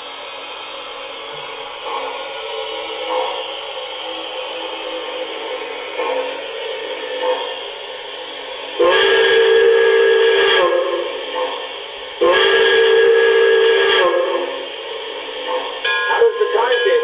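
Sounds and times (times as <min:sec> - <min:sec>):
steam whistle blasts: 0:08.8 - 0:11.2, 0:12.2 - 0:14.7.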